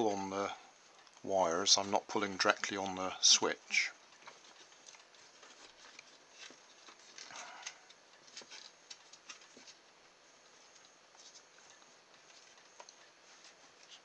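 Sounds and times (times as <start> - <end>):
cable tie clicks and rustles: 4.1 - 9.8.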